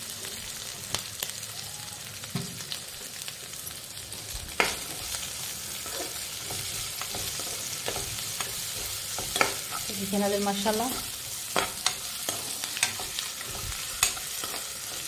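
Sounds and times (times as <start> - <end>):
vegetables sizzling in oil: 0.0 - 15.0
spoon scraping and tapping pan: 5.8 - 9.9, 10.9 - 15.0.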